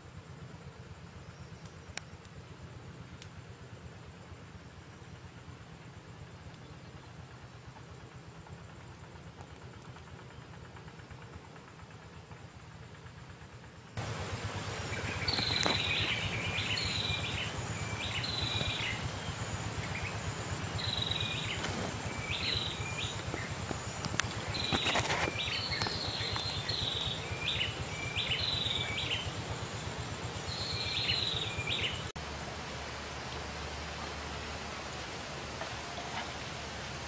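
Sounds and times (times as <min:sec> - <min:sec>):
outdoor background noise: 0:00.0 - 0:37.0
songbird singing: 0:14.0 - 0:32.2.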